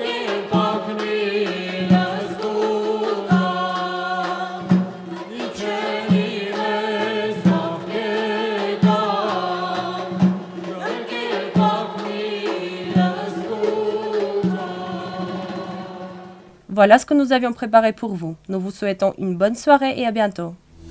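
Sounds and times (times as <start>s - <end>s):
woman singing: 0.0s - 16.2s
drum beats: 0.0s - 16.7s
low drone: 20.7s - 20.9s.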